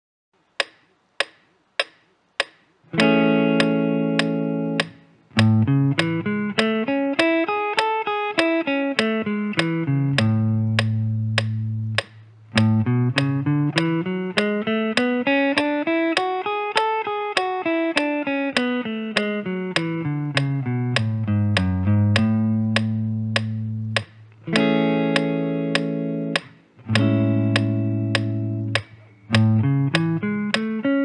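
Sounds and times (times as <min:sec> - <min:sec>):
metronome ticking: 0:00.4 - 0:31.0
clean electric guitar: 0:02.9 - 0:31.0.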